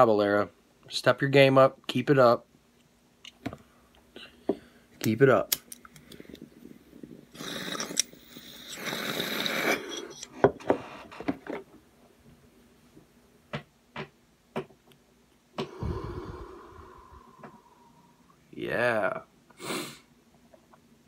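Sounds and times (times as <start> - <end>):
exhale blowing onto microphone: 15.6 - 18.2
breathy hiss: 15.6 - 18.5, 19.5 - 20.1.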